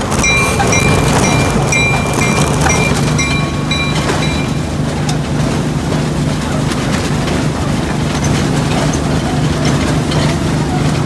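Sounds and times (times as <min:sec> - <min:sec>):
train bell ringing: 0:00.0 - 0:06.3
rail clatter: 0:00.0 - 0:11.0
train running hum: 0:00.0 - 0:11.0.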